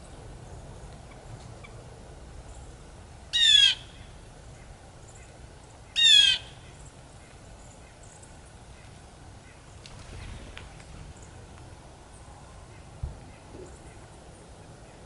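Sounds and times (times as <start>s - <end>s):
blue jay calls: 3.3s - 11.4s.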